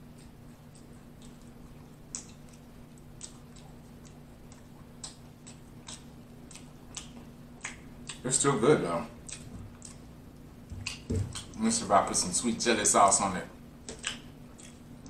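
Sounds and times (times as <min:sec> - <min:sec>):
mouth clicks and smacks chewing: 0:00.0 - 0:08.3, 0:09.2 - 0:11.6, 0:13.8 - 0:15.0
low steady hum: 0:00.0 - 0:15.0.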